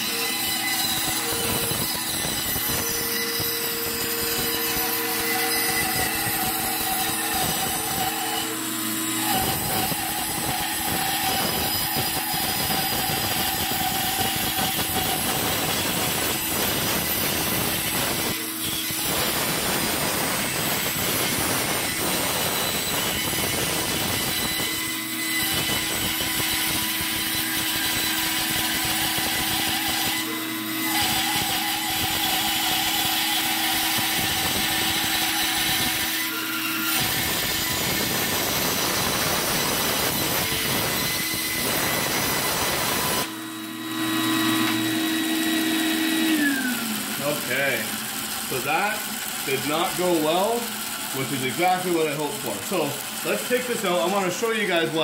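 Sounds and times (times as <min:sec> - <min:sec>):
bandsaw cutting wood: 0:00.0 - 0:55.0.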